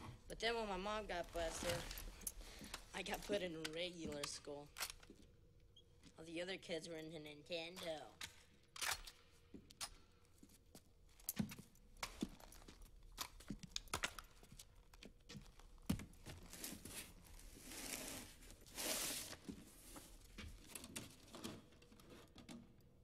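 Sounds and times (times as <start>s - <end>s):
rustling: 0.8s - 3.5s, 15.5s - 21.5s.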